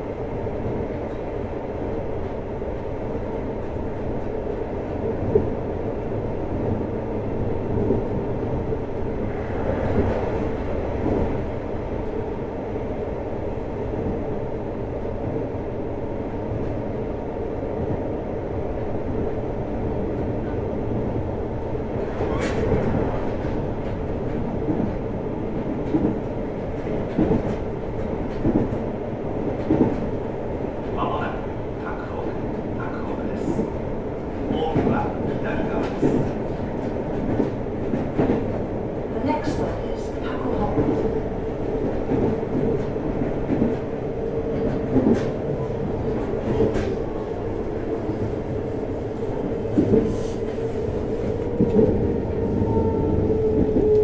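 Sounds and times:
train wheels rumbling on rail: 0.0s - 54.0s
rail joint clicks: 0.1s - 5.8s, 20.1s - 48.2s, 49.1s - 54.0s.

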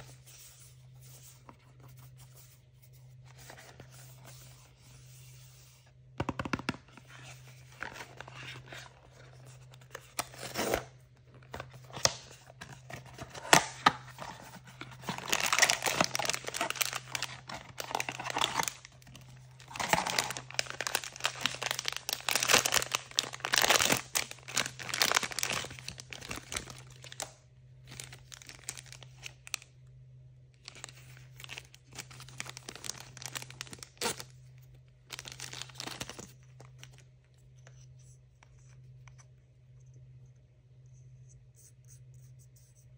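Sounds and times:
packaging tearing and crinkling: 7.7s - 27.3s, 27.9s - 29.6s, 30.6s - 34.3s, 35.1s - 37.0s.

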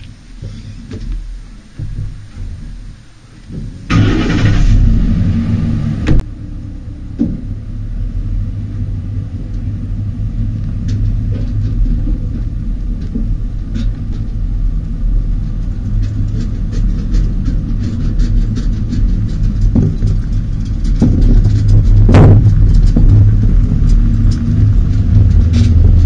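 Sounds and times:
engine starting and idling: 3.9s - 6.2s
faint clicks and rattles: 10.3s - 26.0s.

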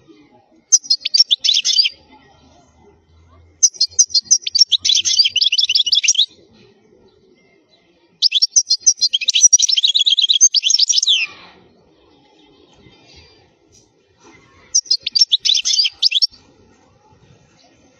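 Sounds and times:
goldfinch singing: 0.7s - 2.0s, 3.6s - 6.4s, 8.2s - 11.3s, 14.8s - 16.4s.

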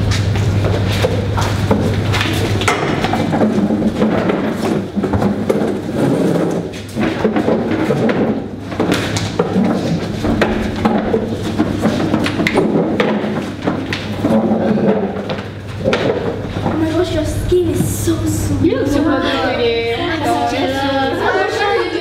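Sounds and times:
furniture dragged on hard floor: 3.1s - 8.5s.

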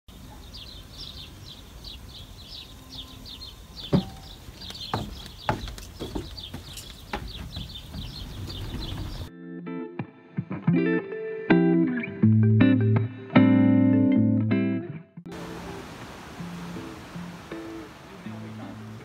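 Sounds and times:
small birds chirping: 0.1s - 9.3s.

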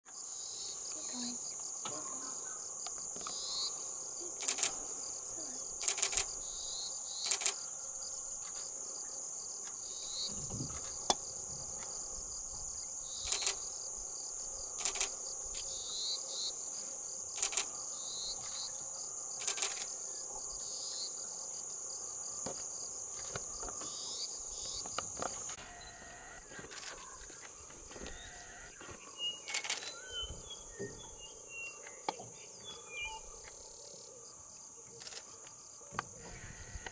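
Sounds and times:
insect chorus drone: 0.1s - 36.9s
sharp clicks: 4.4s - 4.8s, 5.8s - 6.3s, 7.2s - 7.6s, 13.2s - 13.6s, 14.8s - 15.1s, 19.4s - 19.9s.

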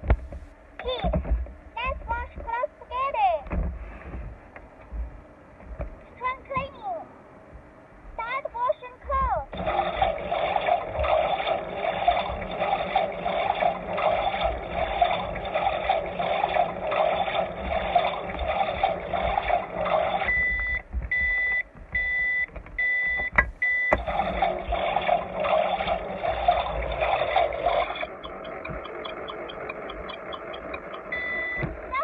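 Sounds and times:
toy washing machine churning: 0.8s - 2.6s, 8.2s - 32.0s
short electronic beeps: 20.3s - 24.0s, 28.2s - 31.6s.

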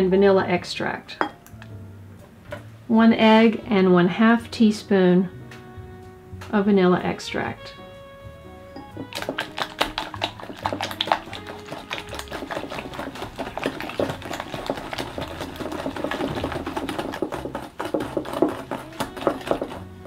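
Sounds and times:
whisk clicking against metal bowl: 9.0s - 19.9s.

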